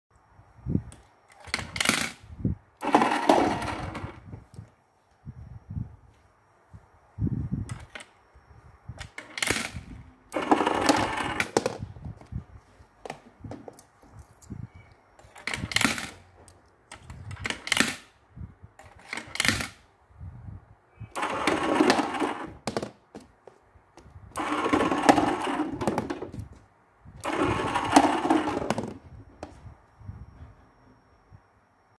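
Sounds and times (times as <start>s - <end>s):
electric coin hoppers running: 2.8s - 4.2s, 9.1s - 11.8s, 15.4s - 16.2s, 21.1s - 22.7s, 24.4s - 26.3s, 27.2s - 29.0s
coins clattering: 9.2s - 9.8s, 15.5s - 16.2s.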